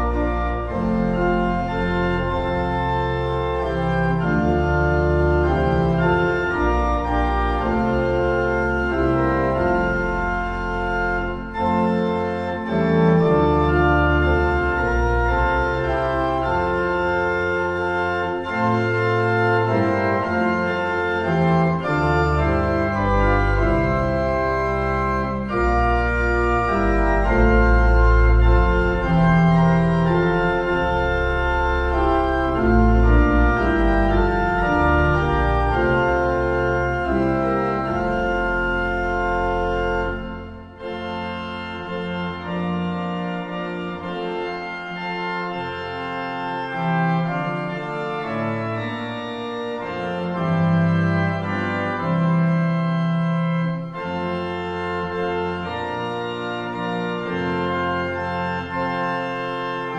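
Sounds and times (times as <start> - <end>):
slow instrumental music: 16.5 - 41.0
deep bass line: 25.6 - 38.6.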